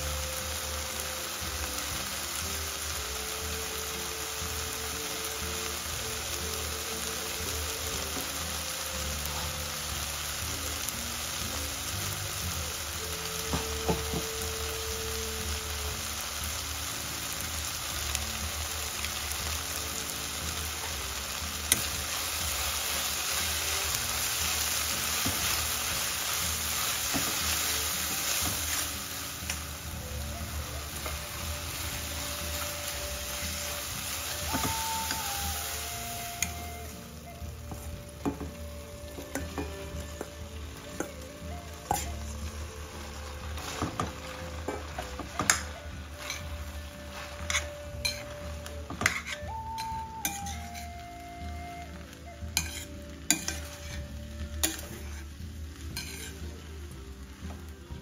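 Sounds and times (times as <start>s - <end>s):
vegetables sizzling in oil: 0.0s - 58.0s.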